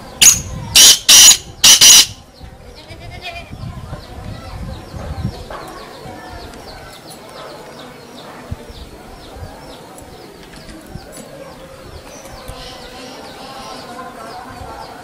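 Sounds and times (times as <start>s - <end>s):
rapid high chirps: 0.2s - 2.2s.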